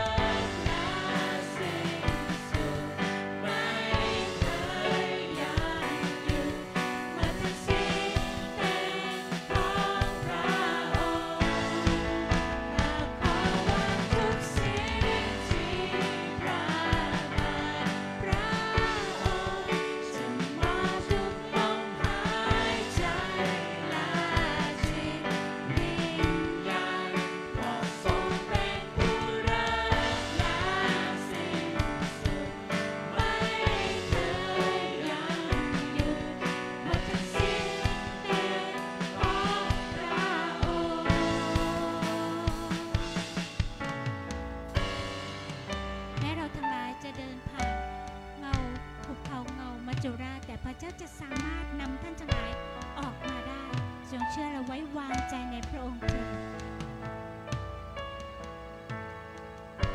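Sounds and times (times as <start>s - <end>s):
drums steady beat: 0.0s - 54.2s, 55.2s - 59.9s
keyboard: 0.0s - 59.9s
woman singing into microphone: 11.4s - 26.8s, 39.2s - 43.3s, 46.2s - 47.7s, 48.4s - 56.3s.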